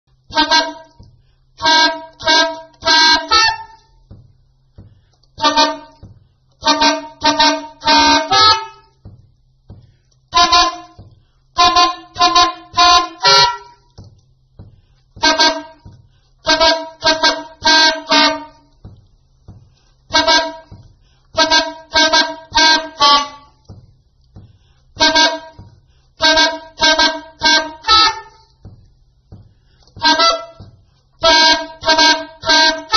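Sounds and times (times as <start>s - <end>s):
soprano saxophone multiphonic chords: 0.3s - 32.9s.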